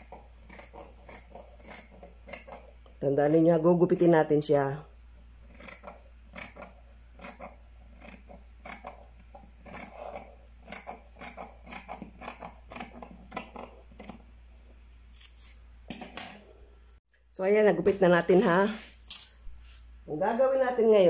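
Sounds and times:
scissors snipping paper: 0.0s - 2.6s.

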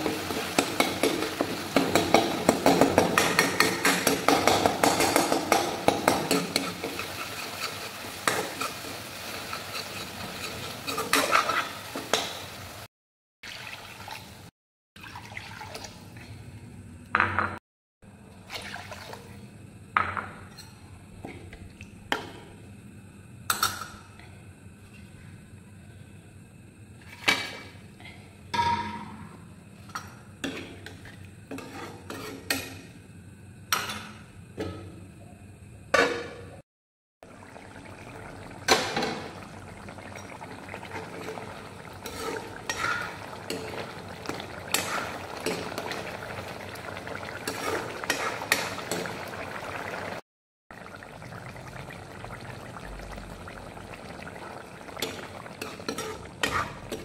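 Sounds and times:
metal spoon scraping pan: 9.4s - 11.8s, 31.5s - 32.5s, 55.6s - 57.0s
curry simmering and bubbling: 37.2s - 57.0s.

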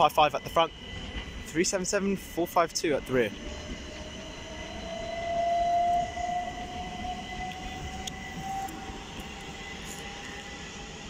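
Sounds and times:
train running rumble: 0.0s - 11.0s
electric train motor whine: 3.0s - 11.0s.

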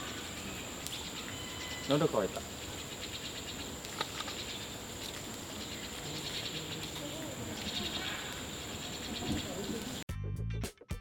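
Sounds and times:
high-pitched insect drone: 0.0s - 10.0s
faint distant voices: 5.2s - 10.0s.

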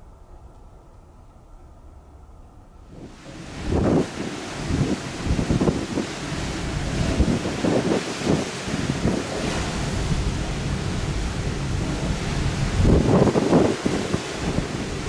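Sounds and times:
wind buffeting microphone: 0.0s - 15.0s
sea water rushing: 2.9s - 15.0s.

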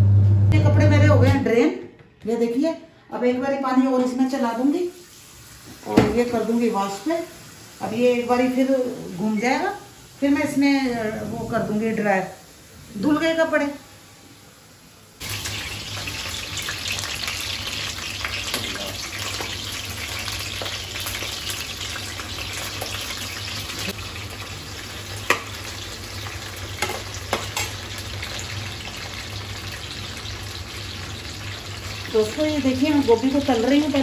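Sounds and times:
low hum: 0.0s - 1.4s
vegetables frying in hot oil: 4.2s - 34.0s.

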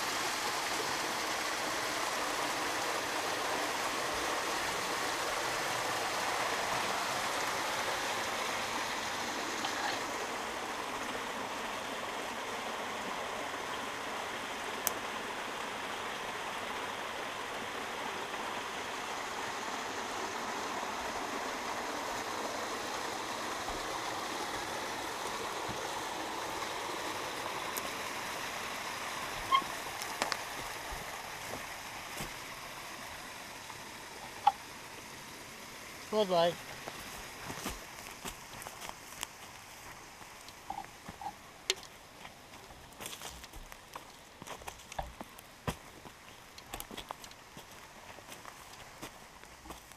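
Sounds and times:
running water rushing: 0.0s - 49.9s.

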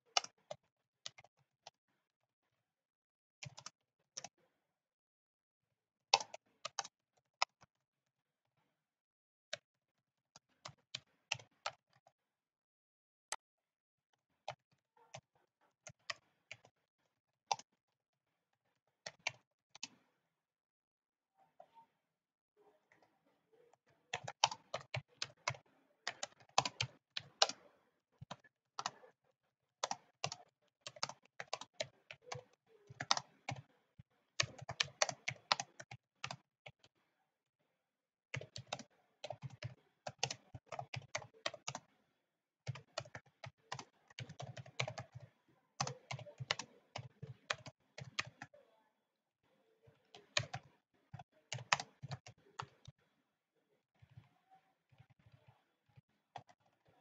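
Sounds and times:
typing on computer keyboard: 6.1s - 7.6s, 24.1s - 29.0s, 29.8s - 33.7s, 34.4s - 36.9s, 38.3s - 41.9s, 42.7s - 48.5s, 50.0s - 52.9s.

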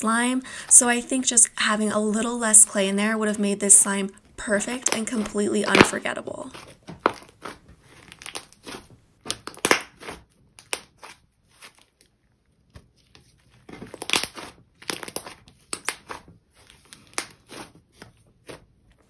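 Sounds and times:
slime popping and crackling: 4.7s - 11.8s, 13.6s - 17.8s.

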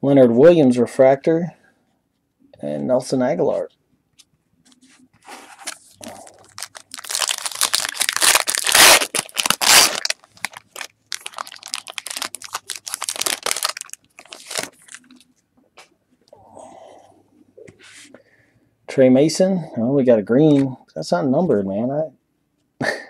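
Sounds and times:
foil wrapper tearing and crinkling: 5.7s - 15.2s.

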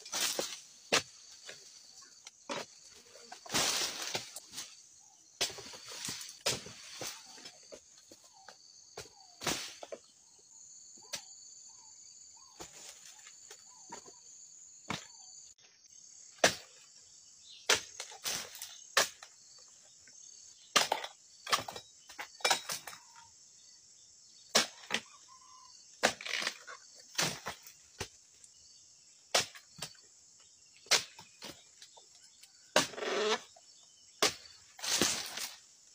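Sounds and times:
pole cutter hacking stalks: 0.0s - 4.8s, 5.4s - 10.0s, 17.6s - 19.4s, 26.0s - 28.2s, 29.3s - 30.0s, 30.8s - 32.0s, 32.7s - 33.6s, 34.2s - 35.7s
insects droning: 0.0s - 35.9s.

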